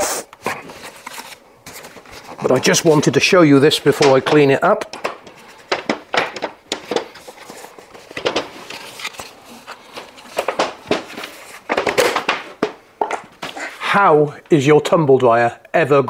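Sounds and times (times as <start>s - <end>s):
plastic clicks and knocks: 4.0s - 7.3s.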